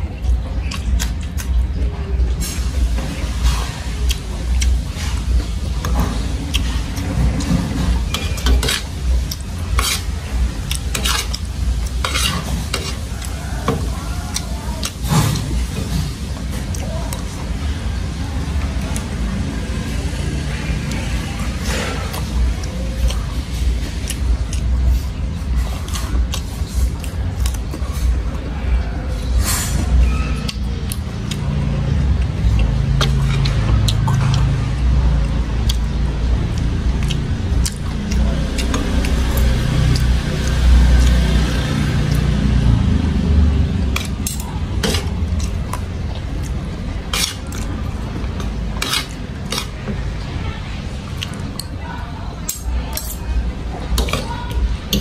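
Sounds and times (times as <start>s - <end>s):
crunchy chewing: 3.5s - 17.4s, 29.2s - 50.4s.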